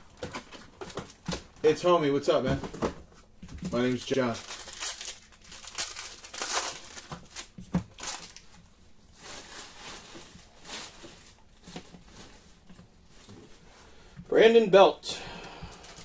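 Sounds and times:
wrapper crinkling and tearing: 3.7s - 12.6s.

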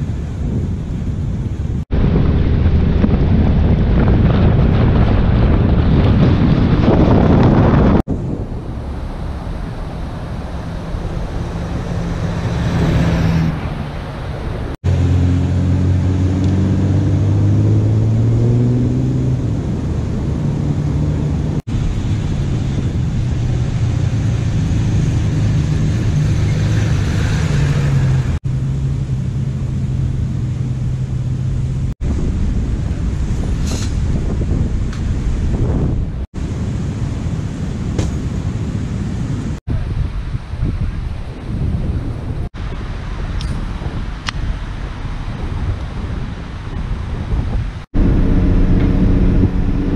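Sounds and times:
diesel engine driving on sand: 0.0s - 49.9s
wind noise on microphone: 0.0s - 49.9s.

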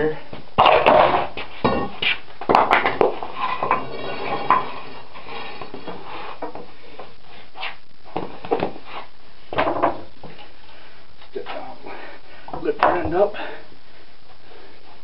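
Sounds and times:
steel bar clanking and scraping: 3.3s - 5.8s.

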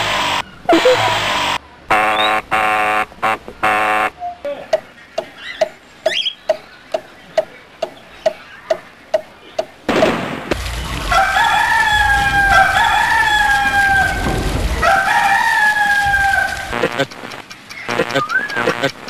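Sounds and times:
regular ticking: 4.7s - 9.8s, 16.5s - 19.0s
sudden loud noise: 9.9s - 19.0s
rooster crowing: 11.0s - 17.0s.

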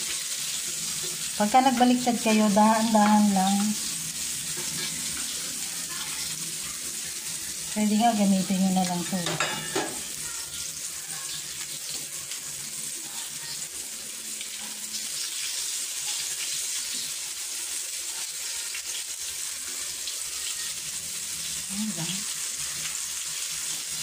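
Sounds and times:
meatballs sizzling in oil: 0.0s - 24.0s
light scrapes in pan: 4.4s - 5.4s.

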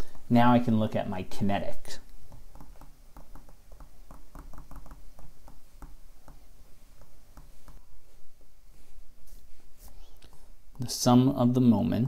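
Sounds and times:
stylus tapping and scraping: 2.0s - 8.6s.

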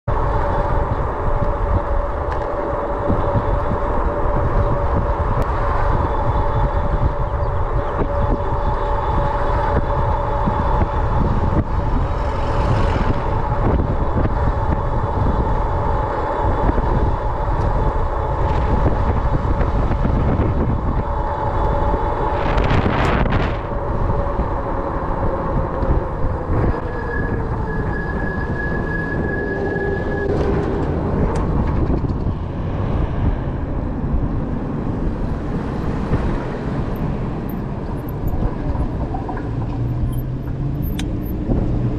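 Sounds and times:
electric bike motor whine: 0.1s - 31.5s
heavy wind rush: 0.1s - 41.9s.

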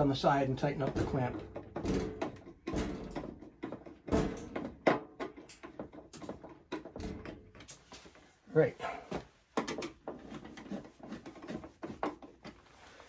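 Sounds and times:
metal panel cover knocks and clanks: 0.0s - 7.8s.

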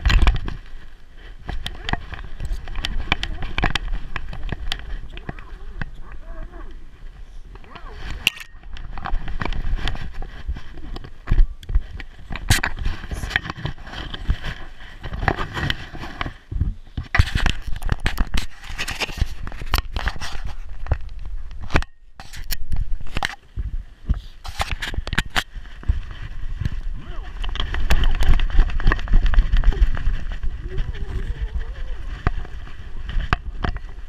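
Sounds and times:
camera mount knocking and scraping: 7.6s - 10.2s, 24.4s - 25.5s.

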